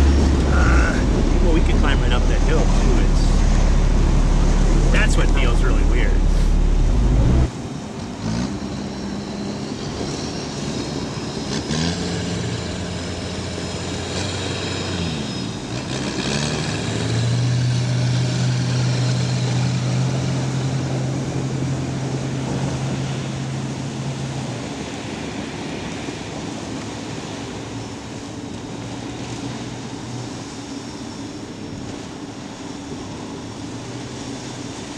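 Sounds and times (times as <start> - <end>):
vehicle engines revving: 0.0 - 26.2.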